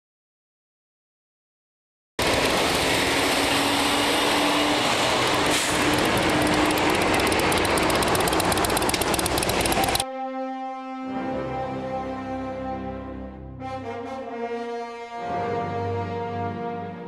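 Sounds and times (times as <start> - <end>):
vehicle road and engine noise: 2.2 - 10.0.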